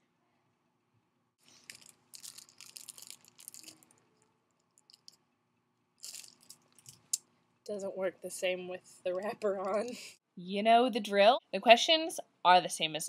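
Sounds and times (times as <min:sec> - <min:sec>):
cellophane crinkling: 0:01.4 - 0:05.2, 0:06.0 - 0:07.1.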